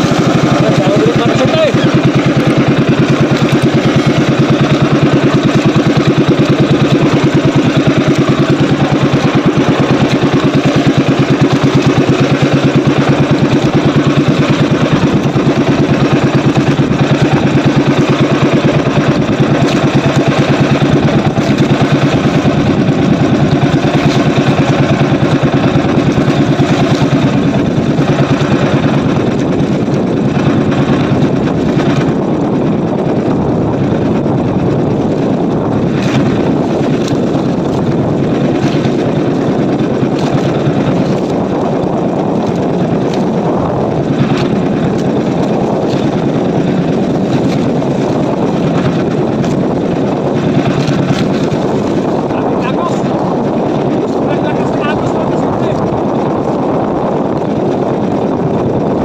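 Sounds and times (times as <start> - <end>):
boat engine droning: 0.0 - 59.0.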